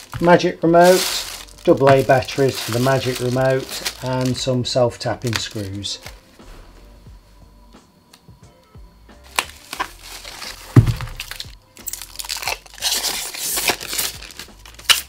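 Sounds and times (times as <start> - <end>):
packaging crinkling and tearing: 0.0 - 6.2, 9.3 - 15.0
dull thump: 10.7 - 11.2.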